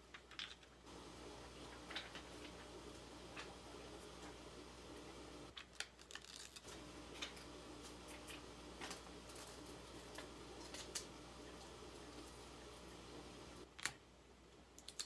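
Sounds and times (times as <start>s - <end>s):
cellophane crinkling: 5.5s - 12.5s.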